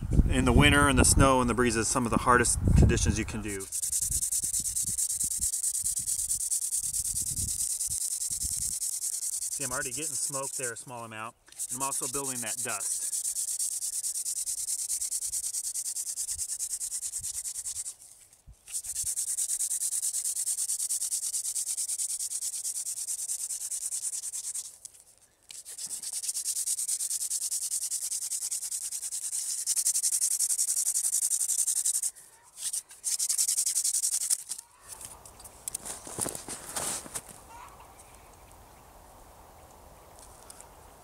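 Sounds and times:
hand drill friction hiss: 0:03.6 - 0:10.9, 0:11.5 - 0:18.0, 0:18.7 - 0:35.1.

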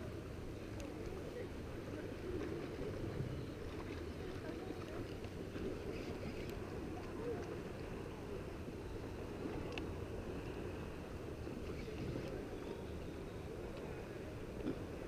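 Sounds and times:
sea water lapping: 0:00.0 - 0:15.0
wind rumble on microphone: 0:00.0 - 0:15.0
faint ticks: 0:09.6 - 0:10.0.

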